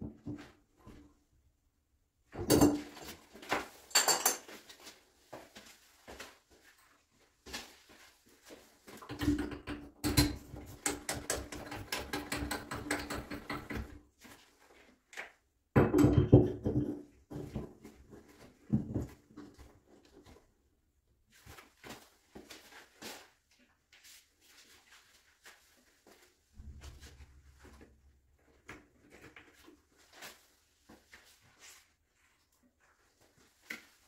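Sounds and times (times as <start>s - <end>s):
metal parts clicking and knocking: 9.1s - 13.9s.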